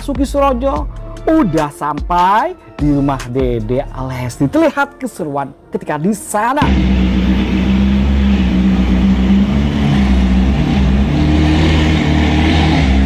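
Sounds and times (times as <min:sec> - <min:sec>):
sports car engine idling: 0:06.6 - 0:13.0.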